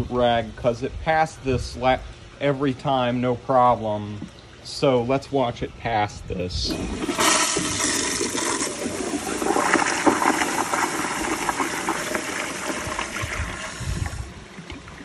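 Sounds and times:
toilet flushing: 6.7 - 15.0.

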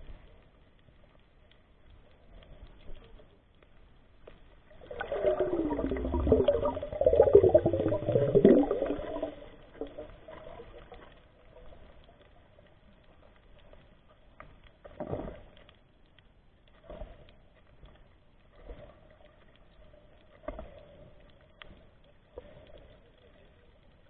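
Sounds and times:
water bubbling underwater: 4.6 - 11.8.

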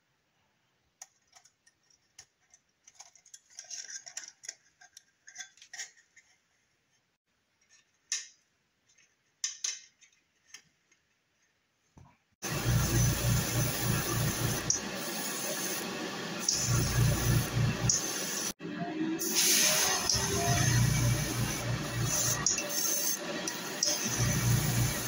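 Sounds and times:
plastic parts clicking: 1.0 - 6.4
plastic parts scraping: 1.0 - 8.1.

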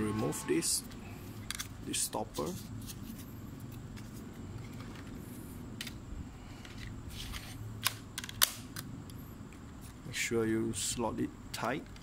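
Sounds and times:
plastic clicks and handling: 6.6 - 9.2, 11.5 - 12.0.

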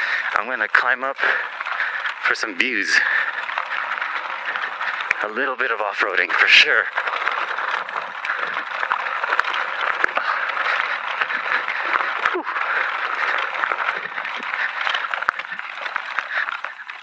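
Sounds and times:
bike rattling: 0.0 - 17.0
bike tyres crunching on gravel: 0.0 - 17.0.

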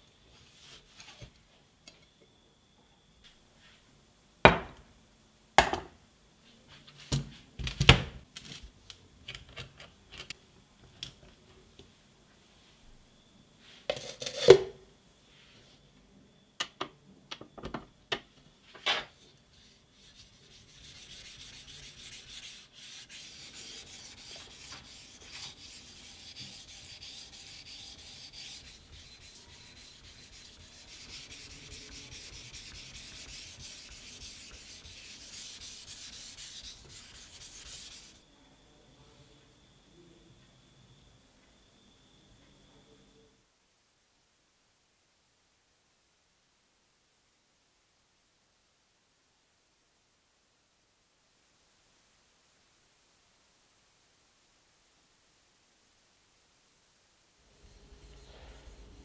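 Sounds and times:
knife scraping on whetstone: 20.0 - 38.2.

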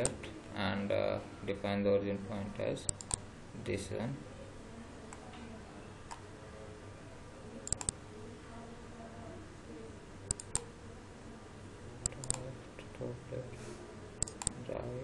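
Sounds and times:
faint steady hum: 0.0 - 15.0
computer mouse clicks: 2.9 - 3.2, 7.6 - 8.0, 10.3 - 10.7, 12.0 - 12.5, 14.2 - 14.6.

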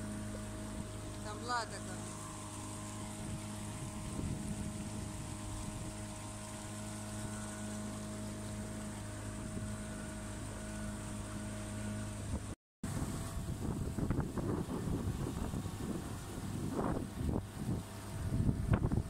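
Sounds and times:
boat motor running: 0.0 - 19.0
gusty wind on microphone: 3.1 - 6.0, 12.2 - 19.0.

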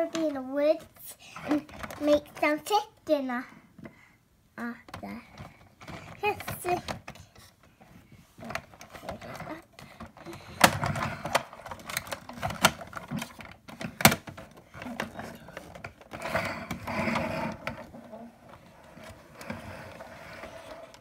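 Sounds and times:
plastic toy clicks and knocks: 8.5 - 17.9.

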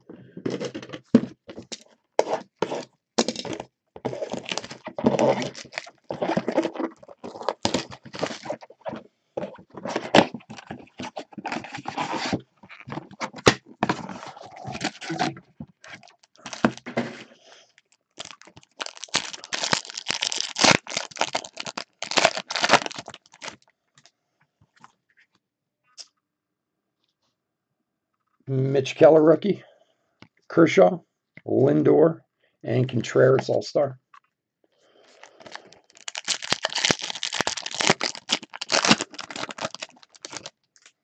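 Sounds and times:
foil wrapper crinkling and tearing: 1.6 - 16.9, 17.7 - 23.7, 35.1 - 41.0.

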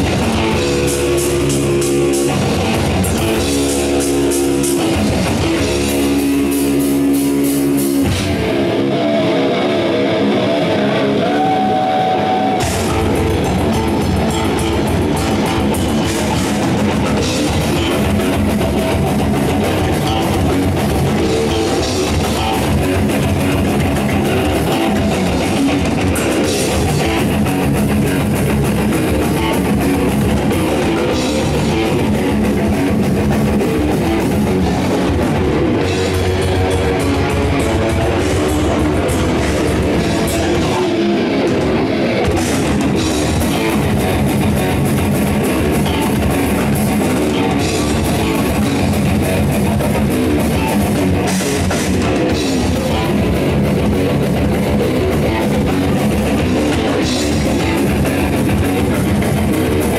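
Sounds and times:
distorted electric guitars: 0.0 - 59.9
drum kit: 0.0 - 59.9.

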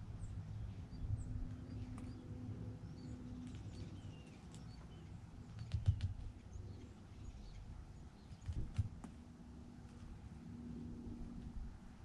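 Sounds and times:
small birds chirping: 0.0 - 9.2
sharp ticks: 5.5 - 6.3.

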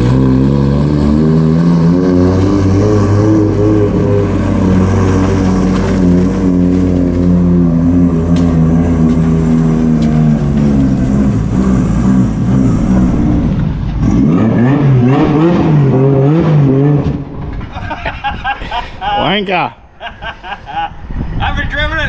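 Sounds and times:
car engine at low revs: 0.0 - 17.4.

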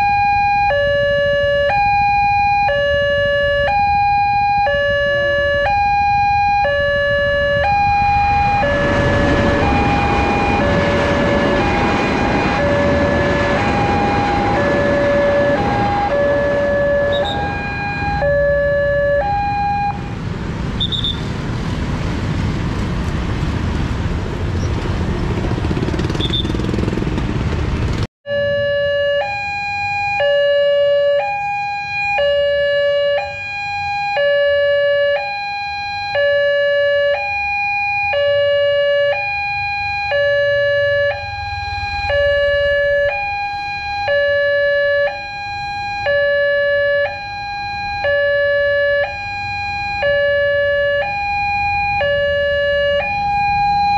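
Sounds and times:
two-tone level crossing alarm: 0.0 - 20.1, 28.3 - 53.9
loud road noise: 0.0 - 53.9.

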